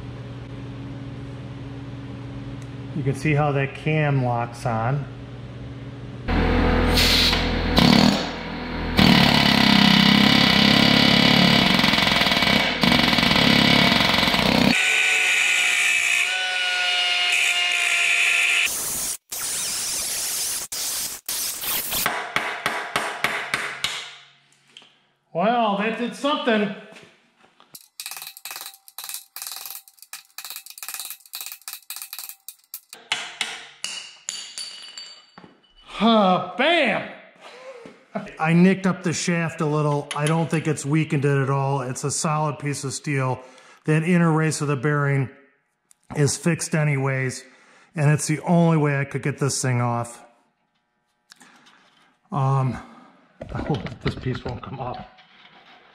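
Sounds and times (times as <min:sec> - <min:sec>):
angle grinder running: 0:06.3 - 0:16.7
metal scraping and clinking: 0:27.8 - 0:33.0.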